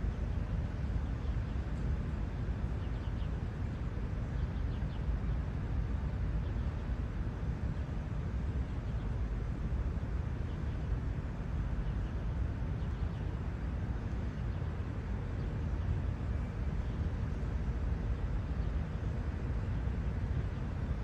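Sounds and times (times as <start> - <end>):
low outdoor rumble: 0.0 - 21.0.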